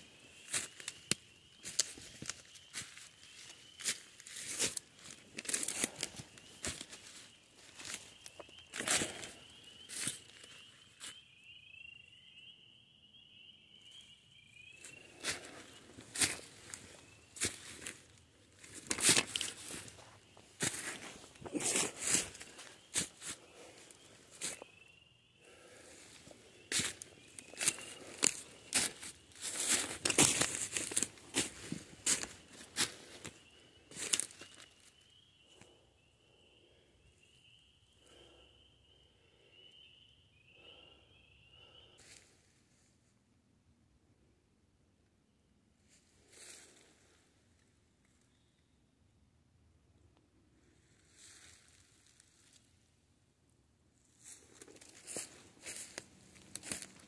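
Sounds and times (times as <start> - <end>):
footsteps crunching dry leaves: 0.3 - 11.1, 14.8 - 24.7, 25.5 - 34.7, 54.2 - 57.0
leaves rustling: 0.4 - 10.4, 14.9 - 24.6, 25.5 - 34.6, 54.2 - 57.0.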